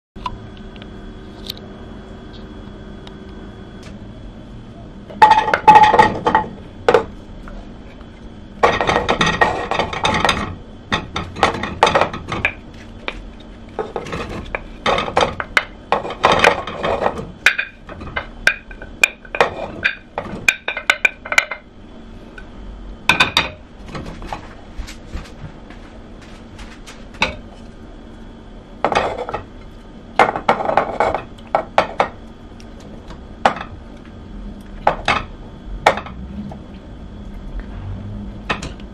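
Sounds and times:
food pieces clattering into pot: 8.6s - 13.2s, 13.8s - 21.6s.

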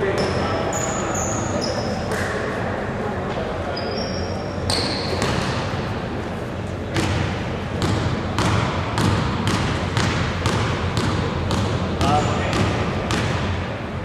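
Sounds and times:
basketball bouncing on wooden floor: 7.0s - 13.5s.

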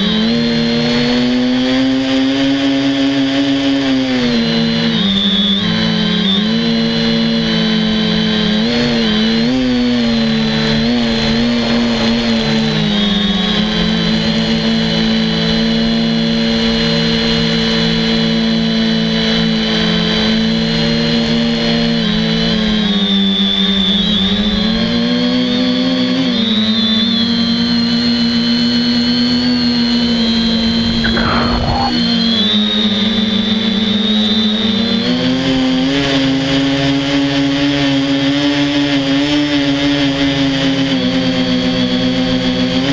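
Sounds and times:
drone motors buzzing and whining: 0.0s - 42.9s.

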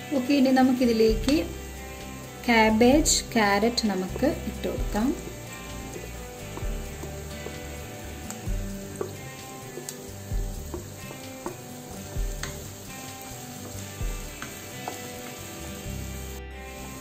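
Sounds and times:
vegetables sizzling in oil: 0.0s - 17.0s
spatula tapping and scraping wok: 4.8s - 15.7s.

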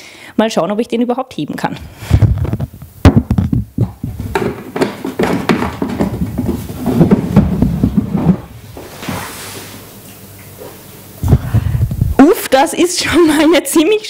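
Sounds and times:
plastic jerrycan handling noise: 2.5s - 9.7s
sharp knocks: 3.0s - 8.6s.

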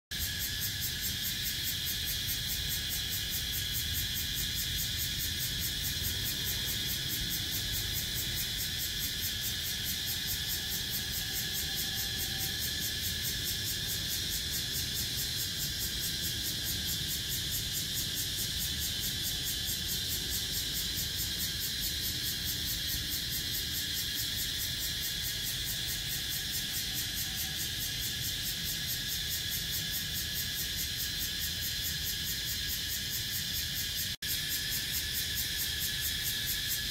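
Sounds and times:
cicadas buzzing: 0.1s - 36.9s.

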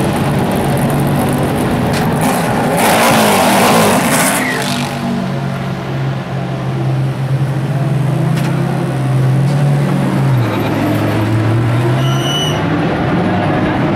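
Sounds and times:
race car engine idling: 0.0s - 2.7s
high-pitched squeal: 11.8s - 12.7s.

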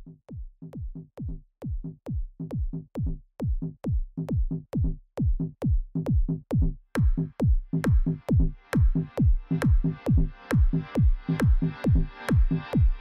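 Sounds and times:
kick drum: 0.0s - 13.0s
electronic dance music: 7.0s - 13.0s.

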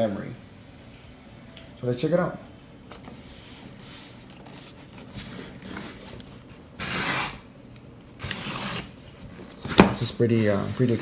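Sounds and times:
cardboard scraping across table: 9.6s - 11.0s.

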